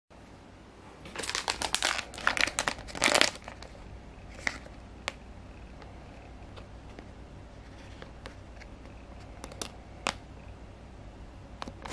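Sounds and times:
foil bag crinkling: 0:01.1 - 0:03.8.

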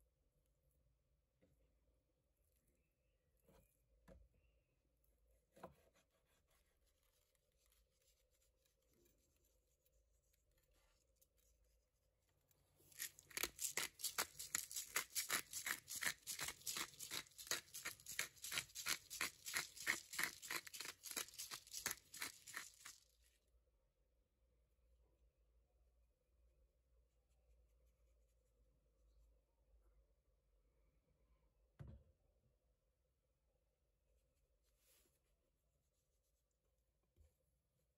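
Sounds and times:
pepper mill grinding: 0:12.9 - 0:23.1.

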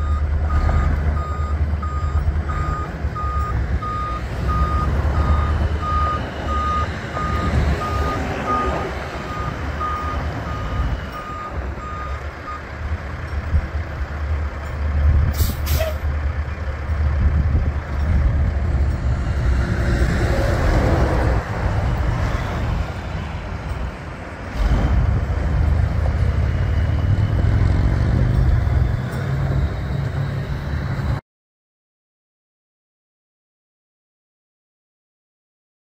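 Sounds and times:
reversing beeper: 0:00.0 - 0:12.7, 0:26.2 - 0:31.2
truck diesel engine running: 0:00.0 - 0:31.2
air brake hiss: 0:15.4 - 0:16.0.

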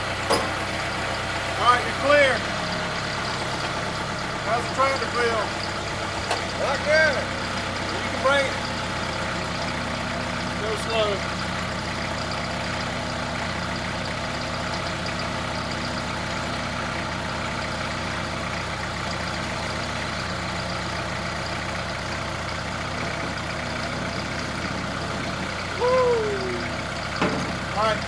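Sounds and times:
tractor engine running: 0:00.0 - 0:28.0
person calling out: 0:25.7 - 0:26.8.

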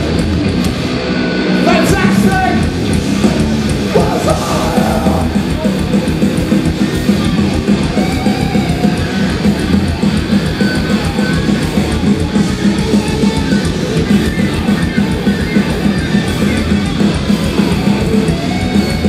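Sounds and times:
metal band playing live: 0:00.0 - 0:19.0.

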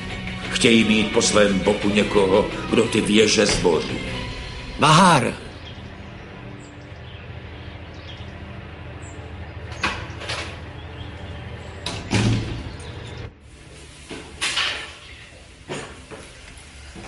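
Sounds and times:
door shutting with clack: 0:11.8 - 0:12.9
door shutting with thud: 0:11.8 - 0:12.9.

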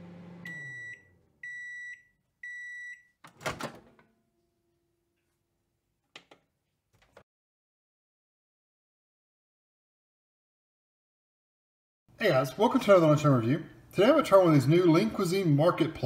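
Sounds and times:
microwave oven humming: 0:00.0 - 0:01.2
microwave high beeps: 0:00.4 - 0:03.2.

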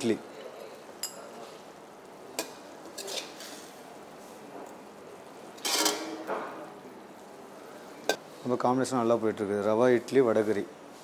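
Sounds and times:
metal ladle scraping a pan: 0:02.9 - 0:03.8, 0:05.6 - 0:06.3.

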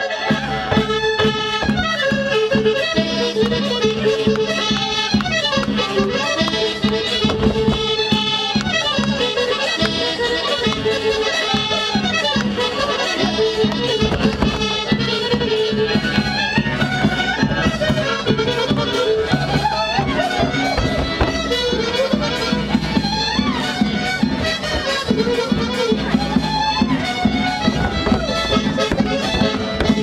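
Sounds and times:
accordion polka: 0:00.0 - 0:30.0.

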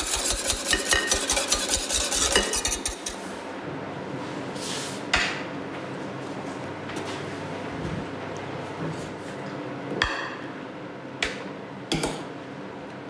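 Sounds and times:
whisk beating in metal pan: 0:00.0 - 0:03.2.

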